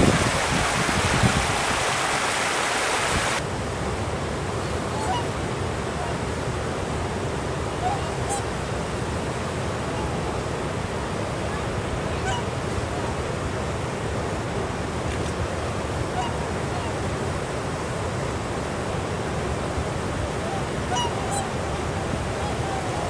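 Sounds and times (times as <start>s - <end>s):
river water rushing over rocks: 0.0s - 23.0s
swans honking: 4.8s - 6.2s, 7.7s - 8.5s, 11.5s - 13.1s, 16.0s - 17.1s, 20.2s - 23.0s.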